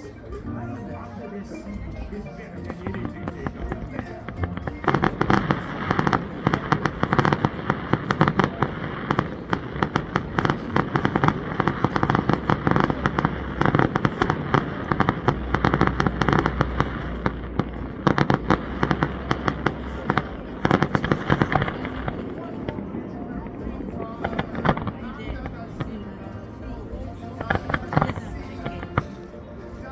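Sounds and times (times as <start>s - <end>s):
fireworks crackling and popping: 1.6s - 29.9s.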